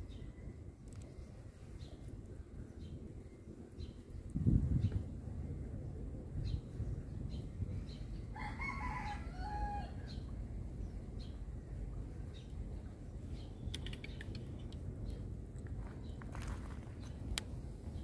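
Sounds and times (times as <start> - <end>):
steady low rumble: 0.0 - 18.0
rooster crowing: 8.3 - 10.0.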